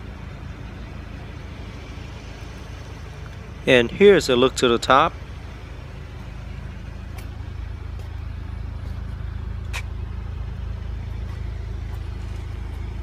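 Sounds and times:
engine idling hum: 0:00.0 - 0:13.0.

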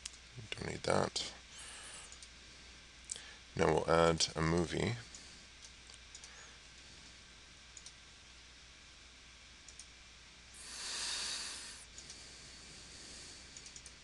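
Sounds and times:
computer mouse clicks: 0:02.1 - 0:02.3, 0:05.6 - 0:06.4, 0:07.8 - 0:08.0, 0:09.7 - 0:09.9, 0:11.9 - 0:12.2, 0:13.5 - 0:14.0
hiss: 0:10.6 - 0:11.9.

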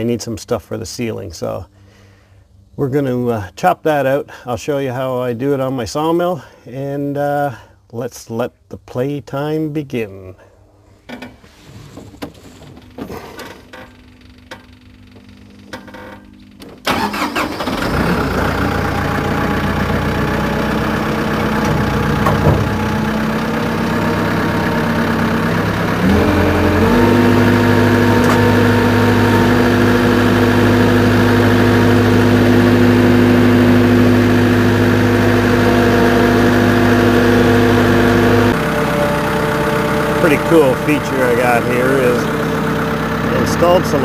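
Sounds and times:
tractor engine starting and idling: 0:12.5 - 0:44.0.

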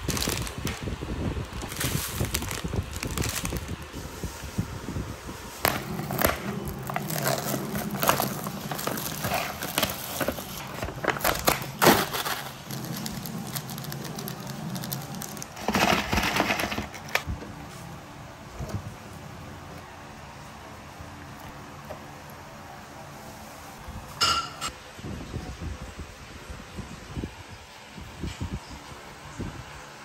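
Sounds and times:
plastic film crinkling: 0:00.0 - 0:17.3
paper lids peeled back: 0:05.6 - 0:17.3.

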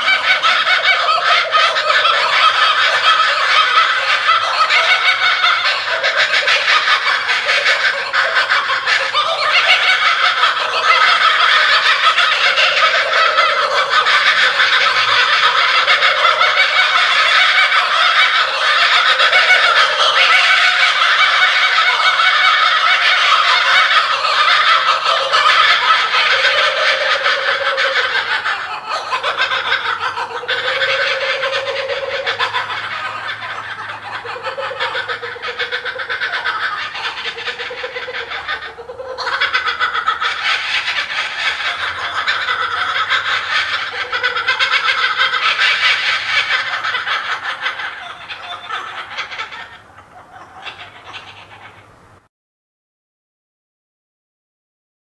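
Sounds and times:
kookaburras cackling calls: 0:00.0 - 0:52.3.

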